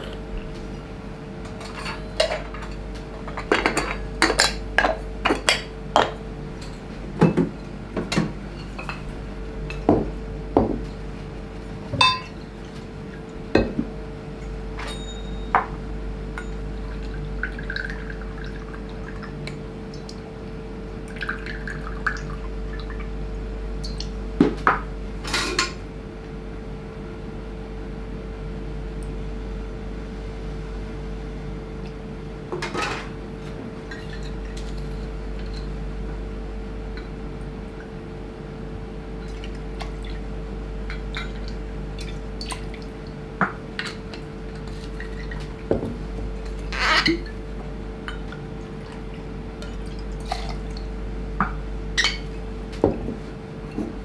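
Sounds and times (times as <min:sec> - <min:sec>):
steady low hum: 0:00.0 - 0:54.0
liquid pouring: 0:16.8 - 0:19.3, 0:48.6 - 0:50.9.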